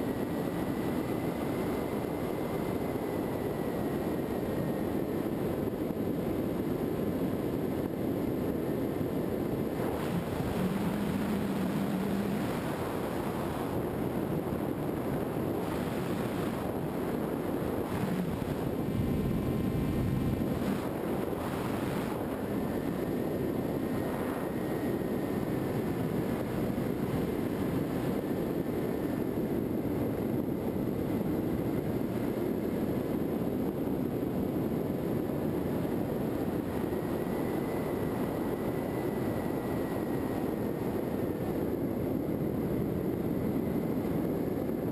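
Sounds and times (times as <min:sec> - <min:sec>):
faint high whine: 0:00.0 - 0:44.9
wind rushing over airframe: 0:00.0 - 0:44.9
electric motor and propeller drone: 0:09.7 - 0:28.8.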